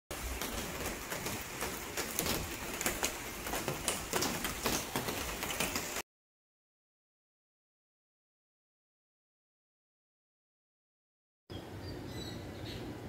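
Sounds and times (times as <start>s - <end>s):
sharp raindrop ticks: 0.1s - 6.0s
steady rain falling: 0.1s - 6.0s.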